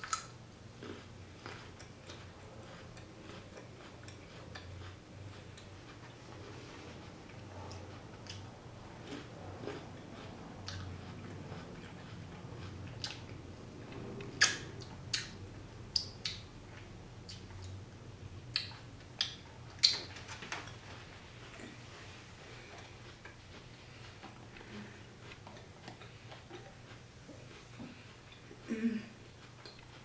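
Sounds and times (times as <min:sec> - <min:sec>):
person chewing crunchy food: 0:00.0 - 0:13.4, 0:20.8 - 0:30.0
wet mouth clicks and smacks: 0:14.4 - 0:16.4, 0:18.5 - 0:20.1.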